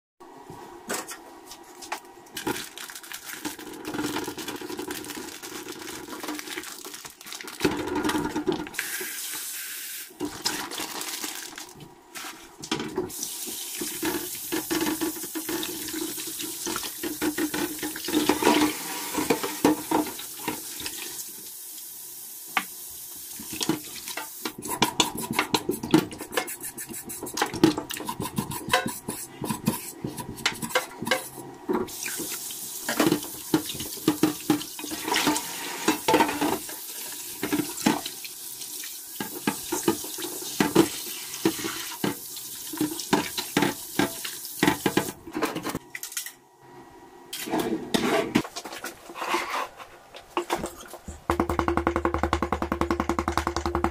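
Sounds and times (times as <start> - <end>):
hands washing meat: 2.5 - 7.7
tap water running into a sink: 13.0 - 24.6, 31.9 - 45.2.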